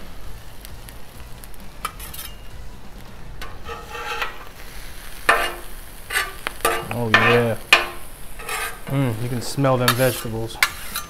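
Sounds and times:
food sizzling: 0:00.0 - 0:11.0
metal spatula scraping griddle: 0:01.8 - 0:02.5, 0:03.4 - 0:11.0.

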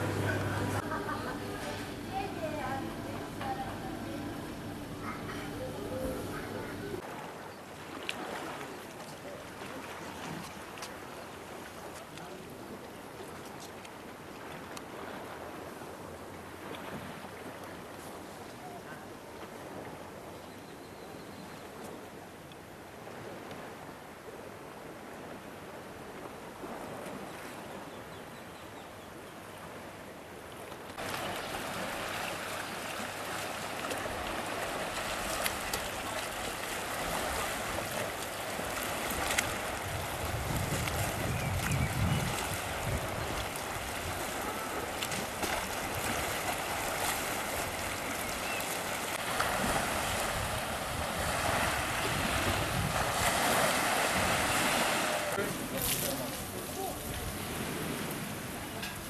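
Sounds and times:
waves washing onto pebble beach: 0:31.0 - 0:59.0.

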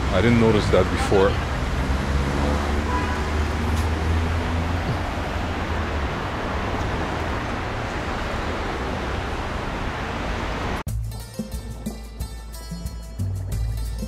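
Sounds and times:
vehicle engine hum: 0:00.0 - 0:10.8
road noise: 0:00.0 - 0:10.9.

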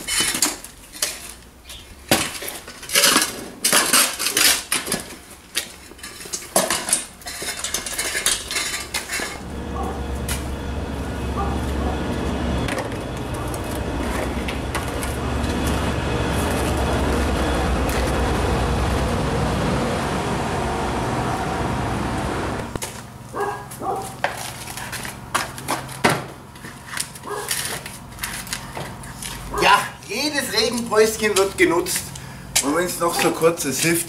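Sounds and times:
motor-like rushing with hum: 0:09.4 - 0:22.8.

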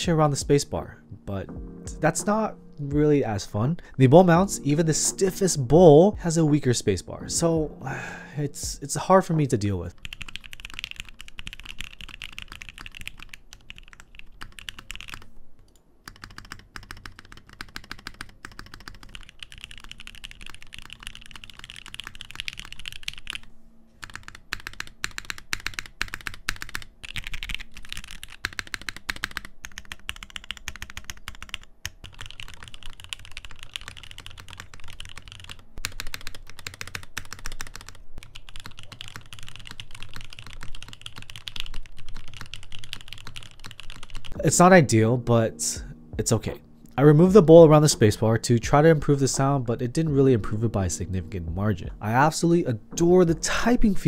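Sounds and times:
mechanical keyboard typing: 0:09.9 - 0:44.4.

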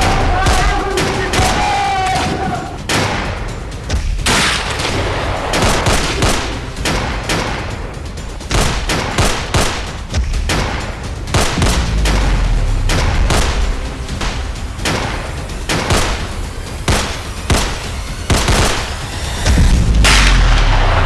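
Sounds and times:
background music: 0:00.0 - 0:21.0
rapid rifle shots: 0:00.0 - 0:21.0
deep rumble: 0:10.2 - 0:21.0.

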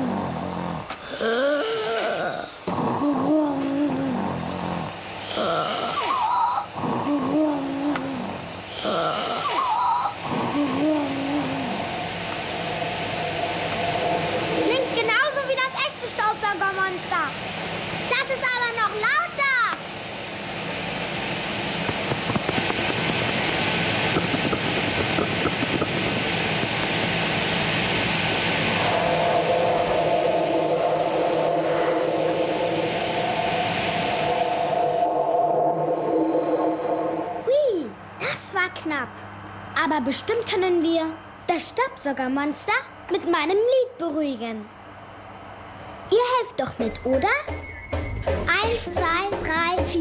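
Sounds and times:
vacuum cleaner running: 0:00.0 - 0:15.4, 0:19.9 - 0:37.4.

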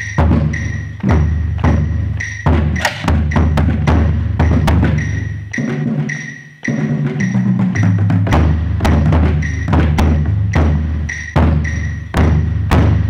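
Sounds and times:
bass drum booms: 0:00.2 - 0:05.0, 0:08.2 - 0:13.0.

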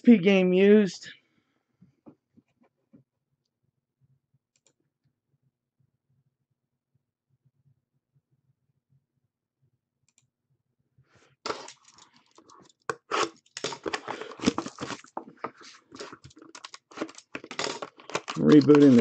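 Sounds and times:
wrapping crinkling and tearing: 0:11.5 - 0:19.0.

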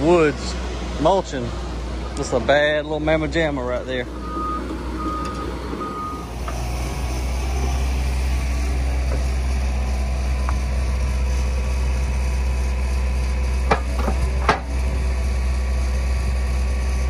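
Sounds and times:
excavator engine droning: 0:00.0 - 0:17.0.

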